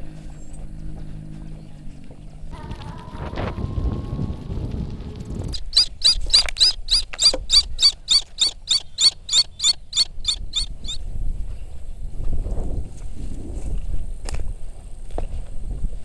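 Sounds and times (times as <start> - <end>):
low wind rumble on microphone: 0.0 - 16.0
eagle calling: 5.5 - 11.0.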